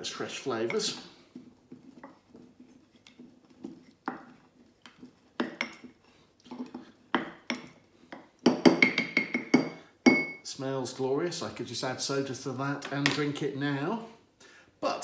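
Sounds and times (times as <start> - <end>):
wooden pestle knocking on glass: 7.1 - 10.4.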